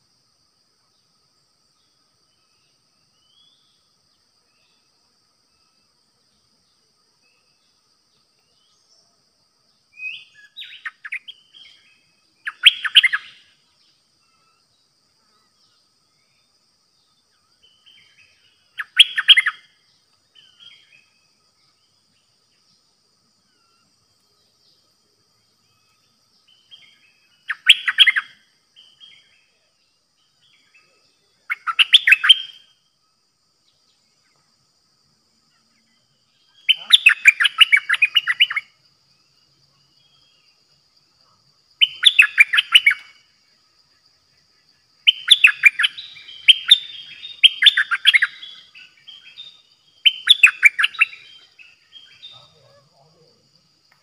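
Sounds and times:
bulbul singing: 9.9s - 14.9s, 15.6s - 22.8s, 25.6s - 29.6s, 30.2s - 32.9s, 35.8s - 38.8s, 41.8s - 43.4s, 45.0s - 54.0s.

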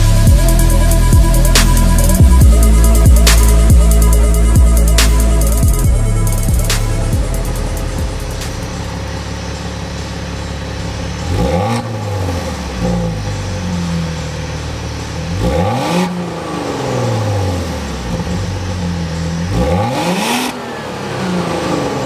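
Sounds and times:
car engine idling and revving: 0.0s - 22.0s.

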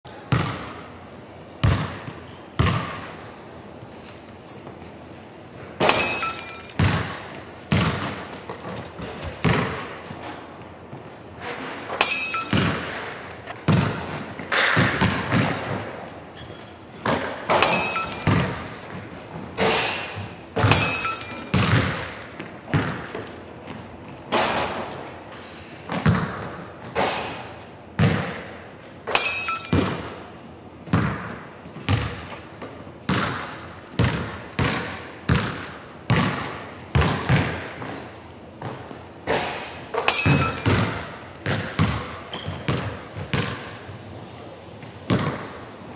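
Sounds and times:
basketball bouncing on wooden floor: 0.3s - 0.8s, 1.6s - 3.1s, 6.8s - 10.0s, 13.6s - 15.9s, 17.0s - 19.5s, 20.2s - 23.8s, 25.9s - 27.1s, 28.0s - 28.4s, 30.9s - 32.4s, 33.1s - 38.0s, 38.6s - 39.0s, 40.0s - 43.8s, 45.1s - 45.5s
basketball striking rim and backboard: 0.3s - 0.9s, 1.6s - 3.1s, 5.8s - 10.0s, 11.6s - 15.9s, 17.0s - 23.4s, 25.8s - 30.2s, 30.9s - 32.3s, 33.1s - 43.9s, 45.1s - 45.5s.

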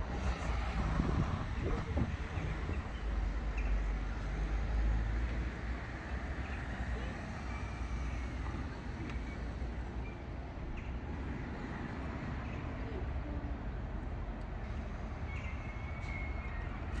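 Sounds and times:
road traffic rumble: 0.0s - 17.0s
people talking nearby: 6.7s - 9.6s.

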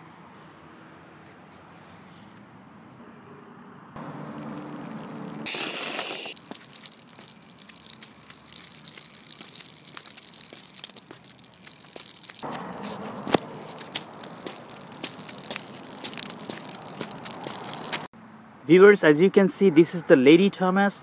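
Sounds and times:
toy wheels rolling over concrete: 4.0s - 18.1s
loud hiss: 5.5s - 6.4s.

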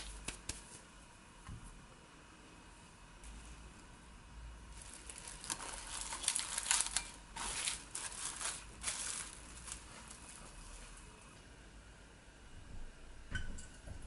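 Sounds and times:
plastic cling wrap crinkling: 4.7s - 11.1s.

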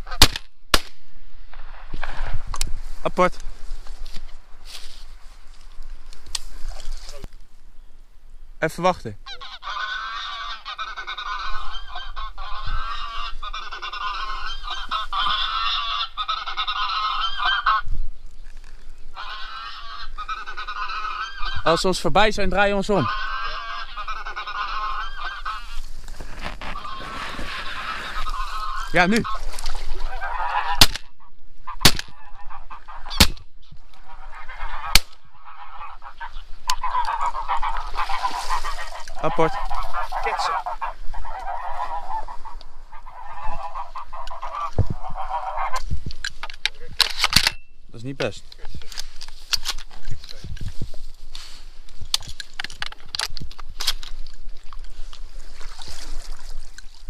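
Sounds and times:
shotgun shots: 0.2s - 1.8s, 31.8s - 32.2s
geese honking: 9.2s - 17.9s, 19.1s - 46.0s.

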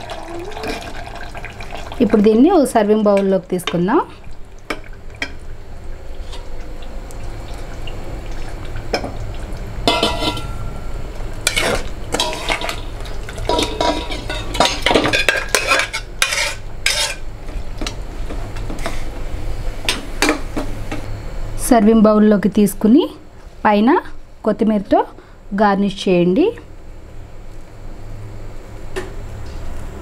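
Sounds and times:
low steady hum: 0.0s - 30.0s
metal spatula scraping pots: 9.9s - 10.6s, 11.4s - 12.8s, 13.4s - 17.2s.

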